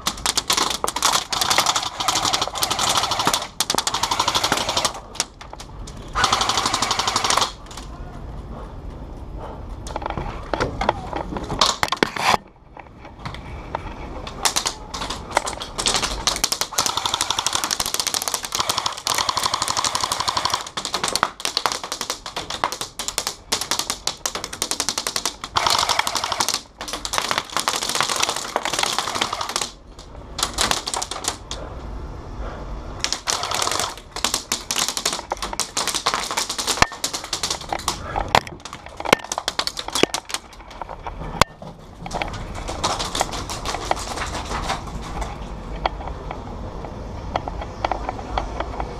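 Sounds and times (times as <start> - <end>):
airsoft guns firing: 0.0 - 5.4, 6.0 - 7.8, 14.4 - 31.6, 33.0 - 40.4.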